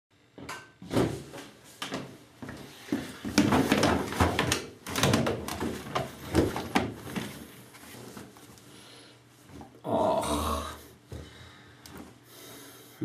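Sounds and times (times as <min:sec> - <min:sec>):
laundry rustling: 0:00.8 - 0:09.8.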